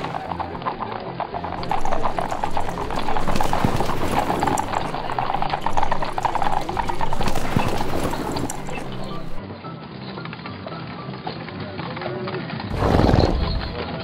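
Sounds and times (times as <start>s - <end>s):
horse hooves clip-clopping: 0.0s - 9.4s.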